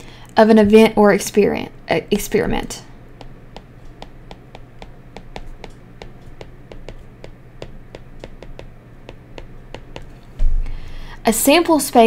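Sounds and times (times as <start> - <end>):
stylus tapping on glass screen: 3.2 - 10.1.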